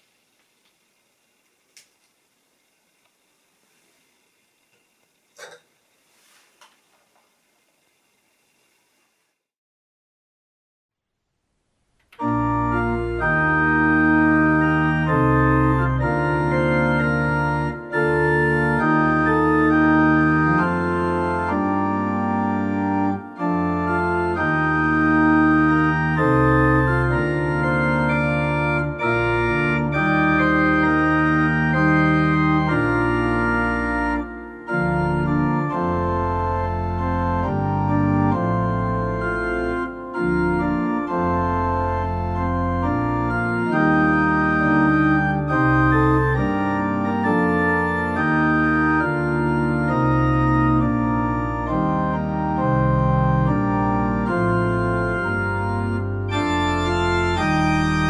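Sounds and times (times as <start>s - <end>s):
organ playing hymn chords: 12.1s - 58.0s.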